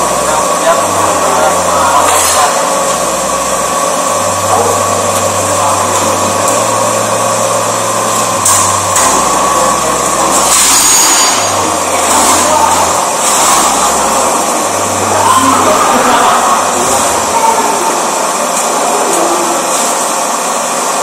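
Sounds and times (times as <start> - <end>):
hydraulic pump motor humming: 0.0 - 21.0
steel sheet clattering: 10.2 - 14.3.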